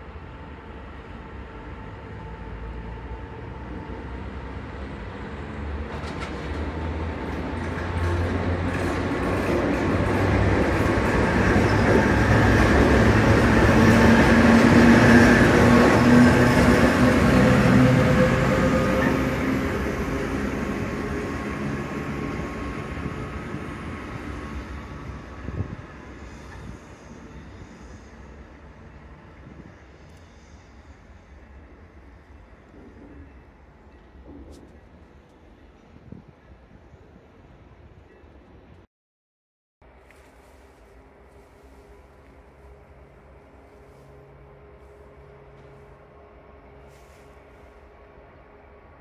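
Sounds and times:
diesel locomotive passing: 0:00.0 - 0:38.7, 0:39.8 - 0:49.0.

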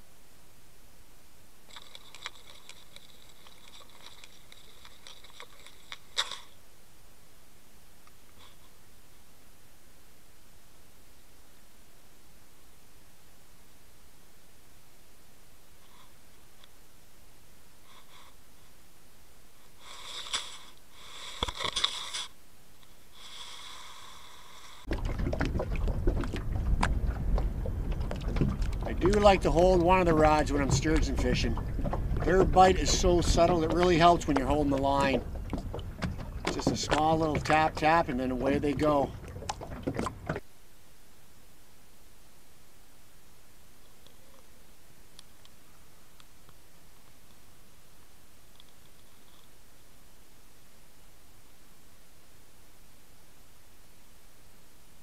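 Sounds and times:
steady hiss: 0:00.0 - 0:24.9
water lapping against boat hull: 0:01.7 - 0:06.6, 0:24.9 - 0:40.6
wind buffeting microphone: 0:24.9 - 0:40.4.

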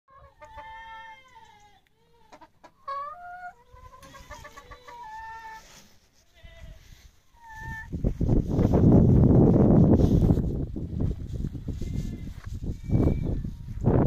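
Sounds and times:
hens clucking and calling: 0:00.1 - 0:08.0.

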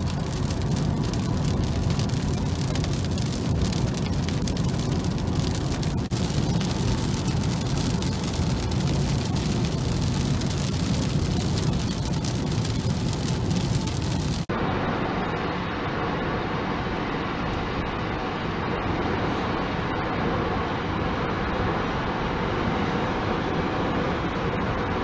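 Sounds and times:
raindrops pattering on windshield: 0:00.0 - 0:14.5
tyre and road noise in car: 0:00.0 - 0:14.8.

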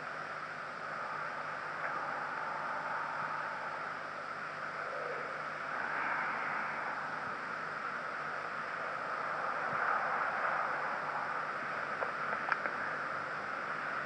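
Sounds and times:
recording background hiss: 0:00.0 - 0:14.0
faint clicks: 0:12.0 - 0:12.8.

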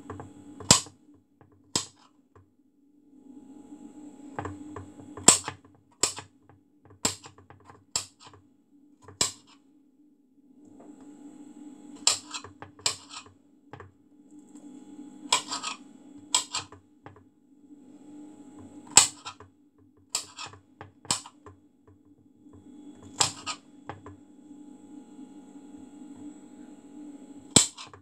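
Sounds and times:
steady low hum: 0:00.0 - 0:01.2, 0:03.0 - 0:05.6, 0:08.0 - 0:28.0
knife chopping on a board: 0:00.1 - 0:00.9, 0:01.7 - 0:02.0, 0:05.2 - 0:06.3, 0:07.0 - 0:08.4, 0:09.0 - 0:09.6, 0:12.0 - 0:13.3, 0:20.2 - 0:21.4, 0:23.0 - 0:24.2, 0:27.6 - 0:28.0.

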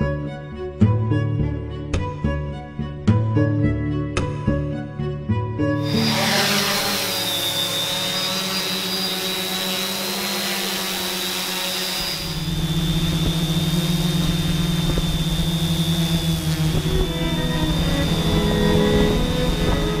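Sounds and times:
drone propellers whining: 0:05.8 - 0:20.0
low humming tones: 0:05.8 - 0:20.0.

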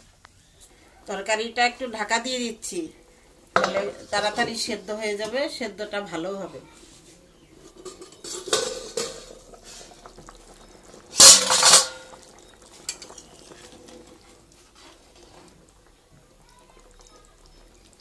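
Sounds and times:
ladle stirring: 0:02.7 - 0:18.0
metal lid clanging: 0:03.6 - 0:05.4, 0:07.6 - 0:09.6, 0:11.2 - 0:12.2
steel cookware clattering: 0:03.6 - 0:05.4, 0:07.6 - 0:10.0, 0:11.1 - 0:13.5.

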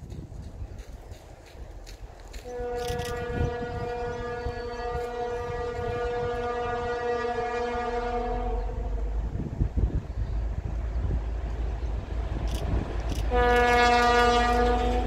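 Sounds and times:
diesel locomotive horn blast: 0:02.4 - 0:09.4, 0:13.1 - 0:15.0.

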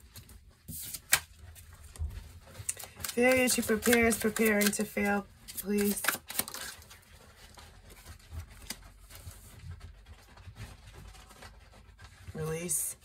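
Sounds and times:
cards rustling: 0:00.0 - 0:12.7
cards clicking and tapping: 0:02.6 - 0:06.8.

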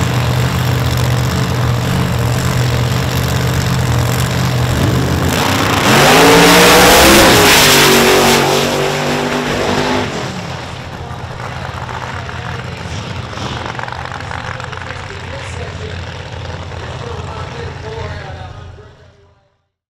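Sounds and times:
drag cars launching at full throttle: 0:00.0 - 0:19.2.

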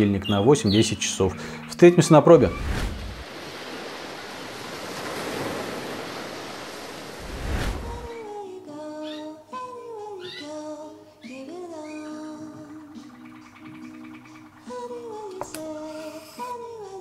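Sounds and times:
surf washing on shore: 0:02.4 - 0:08.2
music with sung melody: 0:08.1 - 0:17.0.

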